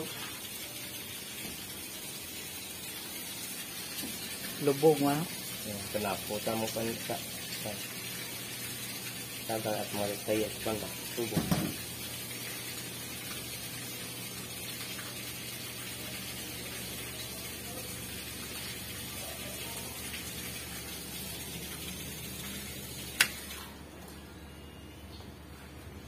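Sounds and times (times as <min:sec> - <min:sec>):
running water hiss: 0:00.0 - 0:23.8.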